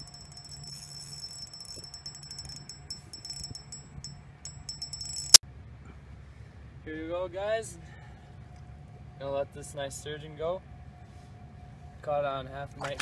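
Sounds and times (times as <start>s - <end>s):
fishing reel drag ticking: 0.0s - 5.4s
low steady hum: 0.0s - 6.8s.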